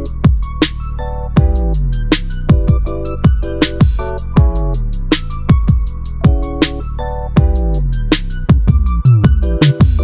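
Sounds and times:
deep kick drums: 0.0s - 0.6s, 1.4s - 6.6s, 7.4s - 10.0s
held synth chords: 0.0s - 10.0s
hi-hat ticks: 1.4s - 6.8s.

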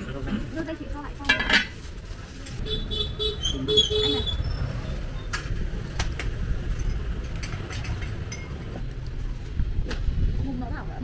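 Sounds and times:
low rumble of street traffic: 0.0s - 11.0s
dishes clinking: 6.8s - 8.8s.

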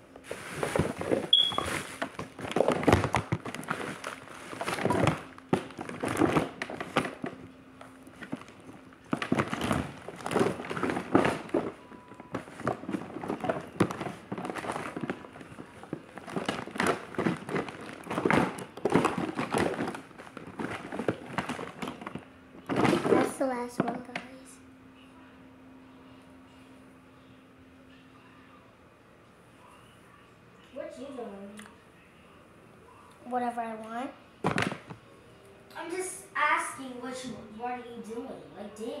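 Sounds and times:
rustling and crinkling of items: 0.0s - 24.4s, 34.4s - 35.0s.

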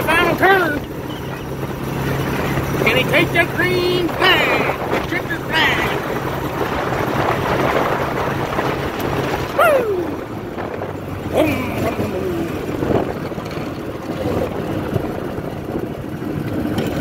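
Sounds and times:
go-kart engine running: 0.0s - 17.0s.

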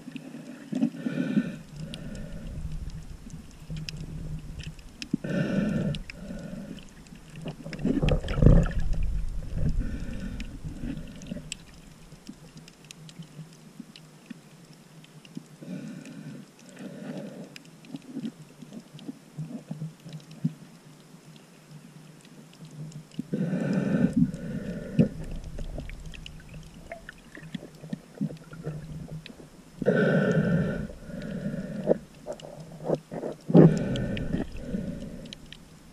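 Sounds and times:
low rumble of moving water: 0.0s - 35.9s
breathing through a snorkel: 0.2s - 3.0s, 5.2s - 7.0s, 9.5s - 11.5s, 15.6s - 17.6s, 23.3s - 26.2s, 29.8s - 35.6s.

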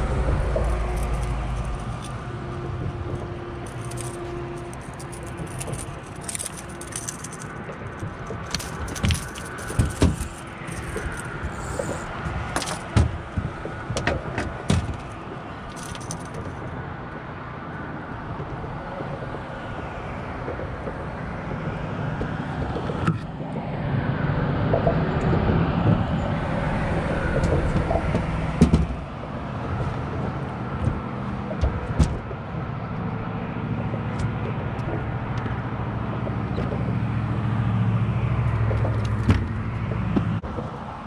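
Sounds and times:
road traffic on bridge: 0.0s - 41.0s
sharp clicks and knocks: 0.1s - 16.6s, 26.9s - 33.1s, 38.1s - 40.9s.

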